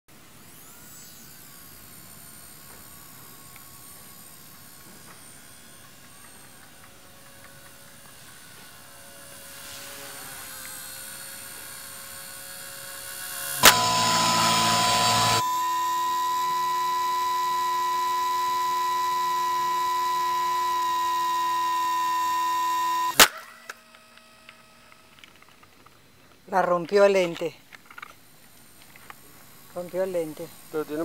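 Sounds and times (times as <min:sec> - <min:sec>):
rc helicopter motor whine: 0:00.1 - 0:31.0
sharp click: 0:13.6 - 0:15.4, 0:19.8 - 0:25.4.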